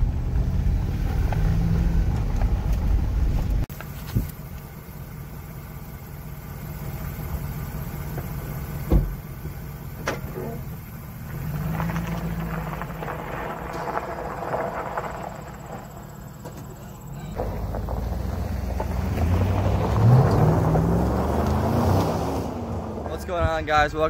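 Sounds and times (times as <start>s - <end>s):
engine idling and revving: 0.0s - 24.0s
tyres crunching over gravel: 0.9s - 24.0s
sharp thump: 8.8s - 9.2s.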